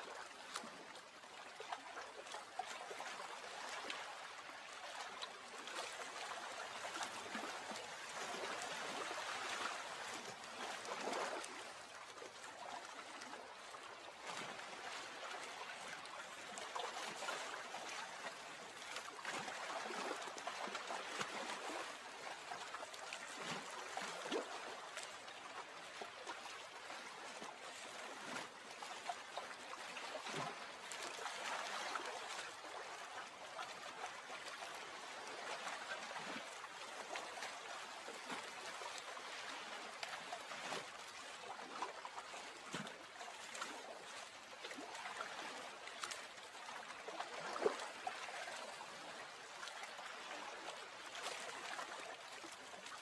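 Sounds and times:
water trickling and babbling: 0.0s - 53.0s
small splashes and drips: 0.1s - 53.0s.

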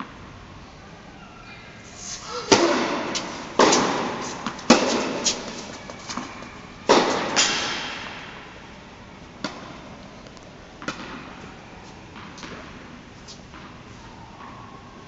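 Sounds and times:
racket hitting tennis ball: 2.0s - 8.6s
ball bouncing with echo: 2.3s - 8.5s.

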